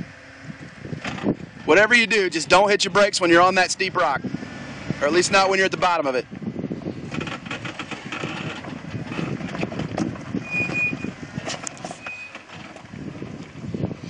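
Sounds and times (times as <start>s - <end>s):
engine running low: 0.0s - 14.0s
brief high squeaks: 10.4s - 12.6s.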